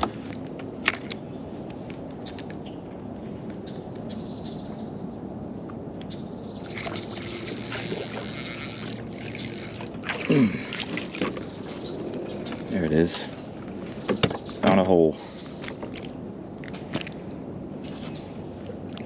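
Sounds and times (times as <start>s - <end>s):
fishing reel whirring and clicking: 6.6s - 10.2s.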